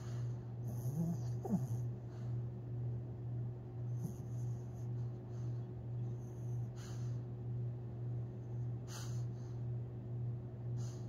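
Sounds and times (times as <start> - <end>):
dog snoring: 0.0 - 2.4, 3.9 - 5.5.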